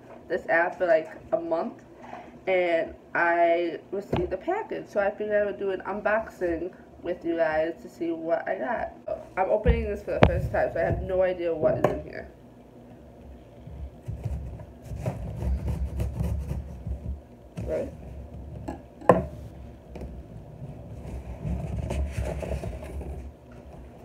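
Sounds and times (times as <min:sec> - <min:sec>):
handling thumps: 0:09.6 - 0:12.2
cardboard scraping: 0:14.0 - 0:17.9, 0:20.5 - 0:23.4.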